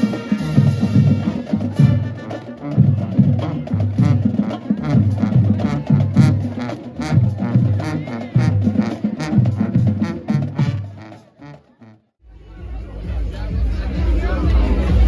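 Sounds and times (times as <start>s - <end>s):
marching band playing: 0.0s - 15.0s.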